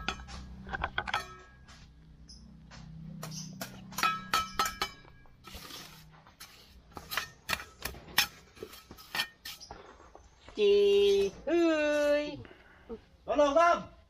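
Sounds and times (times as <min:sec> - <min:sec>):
trowel clinking on bricks: 0:00.0 - 0:01.9, 0:03.2 - 0:09.7
trowel scraping: 0:03.2 - 0:10.3.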